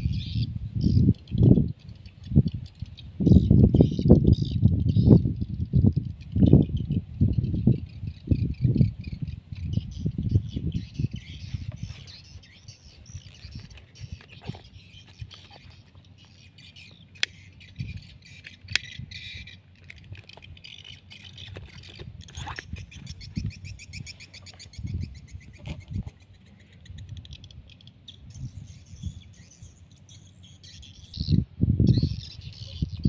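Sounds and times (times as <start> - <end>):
birds chirping and trilling: 0.0 - 33.0
rustling: 11.5 - 16.4
sharp clicks: 17.2 - 22.0.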